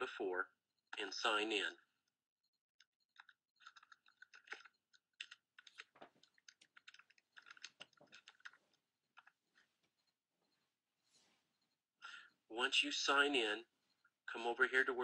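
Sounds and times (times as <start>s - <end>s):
keyboard typing: 2.8s - 9.7s.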